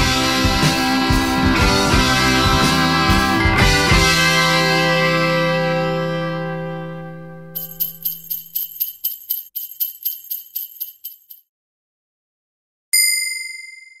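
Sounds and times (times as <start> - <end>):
bright chime ringing: 7.6 - 11.3, 13.0 - 14.0
jingle bells shaken: 7.6 - 11.5.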